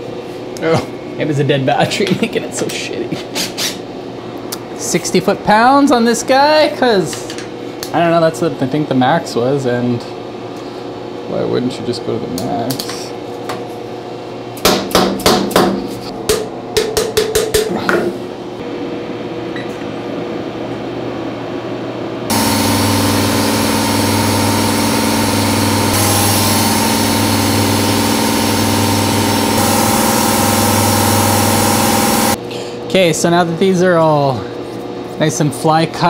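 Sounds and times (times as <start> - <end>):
milling machine fly-cutting metal: 22.3 - 32.4.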